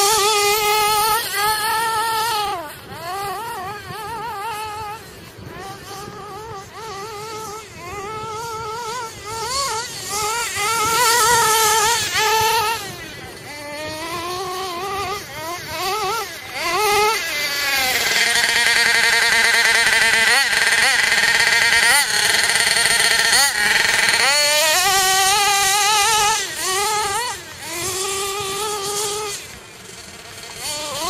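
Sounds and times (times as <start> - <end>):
rc buggy engine revving: 0.0 - 31.0.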